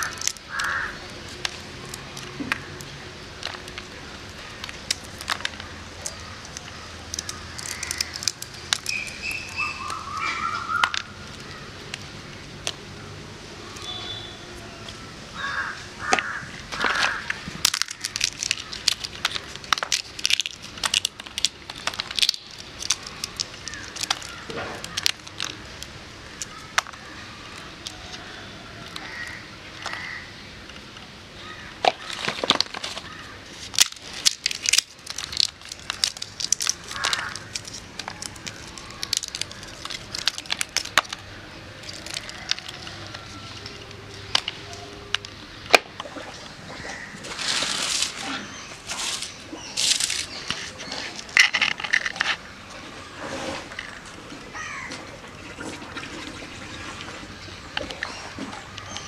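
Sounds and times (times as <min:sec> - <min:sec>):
shell pieces crunching: 0:00.0 - 0:12.8, 0:16.0 - 0:28.2, 0:31.7 - 0:46.1, 0:47.3 - 0:52.5
dry pod shells cracking: 0:00.0 - 0:14.2, 0:14.8 - 0:52.7.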